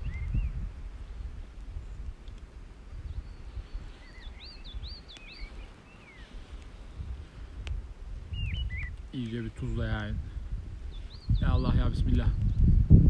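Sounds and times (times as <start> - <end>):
songbird chirping: 0.0 - 10.2, 10.8 - 12.7
wind rumbling on microphone: 0.0 - 13.0.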